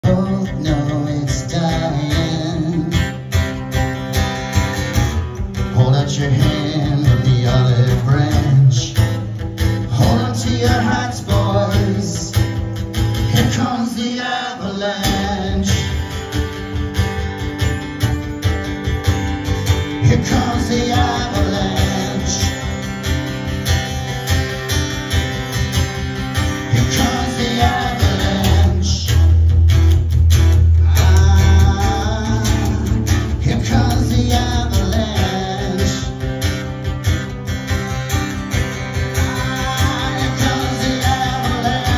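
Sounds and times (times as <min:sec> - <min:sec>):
man singing: 0:00.0 - 0:03.3, 0:05.6 - 0:16.2, 0:19.8 - 0:23.0, 0:26.5 - 0:29.6, 0:30.8 - 0:36.6, 0:38.8 - 0:41.9
acoustic guitar: 0:00.0 - 0:41.9.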